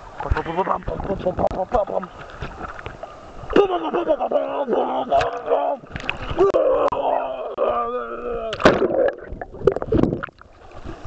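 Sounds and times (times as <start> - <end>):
water splash: 8.5 - 11.0.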